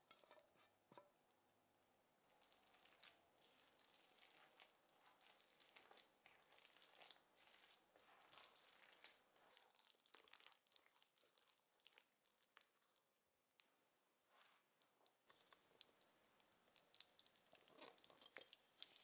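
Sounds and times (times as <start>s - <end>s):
spatula mixing thick batter: 2.3s - 13.1s, 14.3s - 19.0s.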